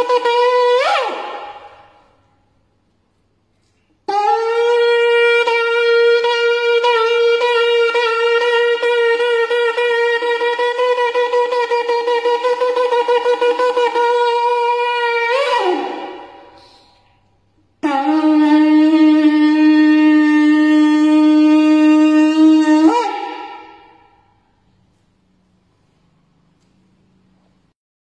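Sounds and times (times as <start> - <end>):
horn blown long note: 0.0 - 2.2, 4.1 - 17.0, 17.8 - 24.4.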